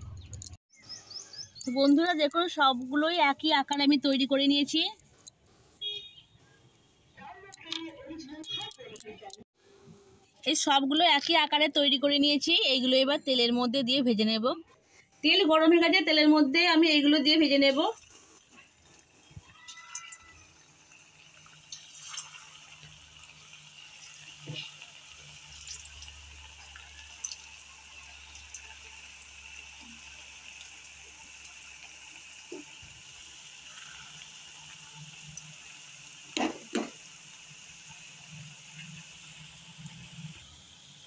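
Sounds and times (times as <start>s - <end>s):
hot oil sizzling and bubbling: 15.9s - 41.0s.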